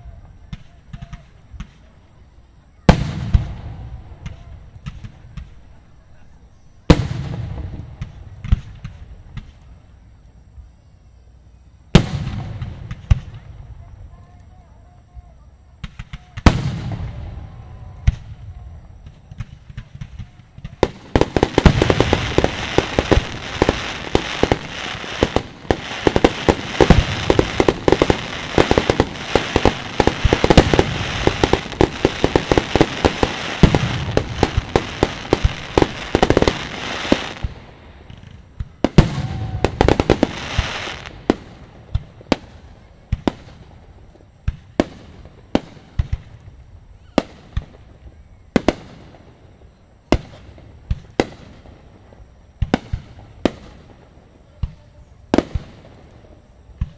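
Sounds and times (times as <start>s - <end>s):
firework bangs: 0.2s - 2.0s, 2.8s - 5.8s, 6.8s - 9.6s, 11.9s - 14.0s, 15.8s - 47.9s, 52.6s - 56.9s
firework pops: 0.2s - 2.0s, 2.9s - 5.8s, 6.9s - 9.7s, 44.4s - 47.8s, 52.6s - 53.9s, 54.6s - 56.9s
firework crackling: 15.8s - 56.9s.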